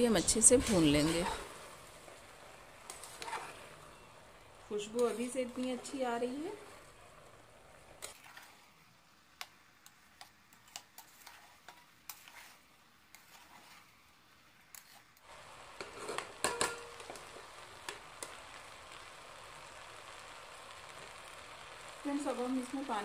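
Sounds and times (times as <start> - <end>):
light sizzle: 0.0 - 23.0
spoon scraping a pot: 2.9 - 3.7, 8.0 - 8.7, 10.5 - 13.9, 15.8 - 17.1.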